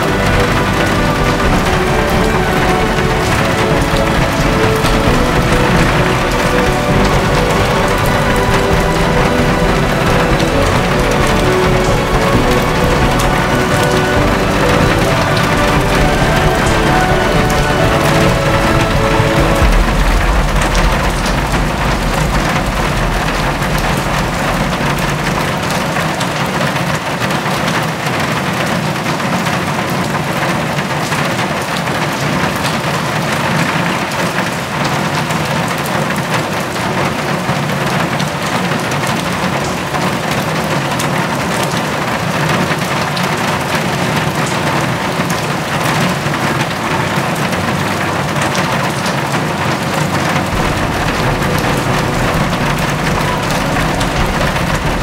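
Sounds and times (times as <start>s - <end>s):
low rumble: 0.0s - 27.4s, 50.5s - 55.0s
rain pattering on hard surfaces: 0.0s - 55.0s.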